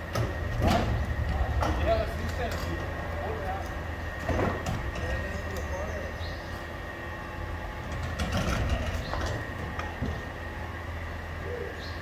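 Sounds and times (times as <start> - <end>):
dumpster rolling and rattling: 0.0 - 6.0, 7.4 - 10.6
garbage truck engine idling: 0.0 - 12.0.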